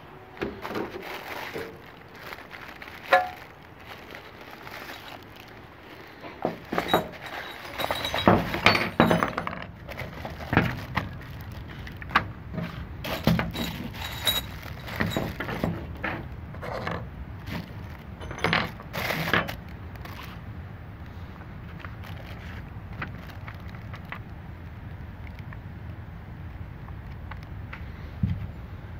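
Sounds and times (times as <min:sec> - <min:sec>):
plastic bags rustling: 0:00.0 - 0:25.4
small parts clinking: 0:01.2 - 0:12.2, 0:13.0 - 0:20.4.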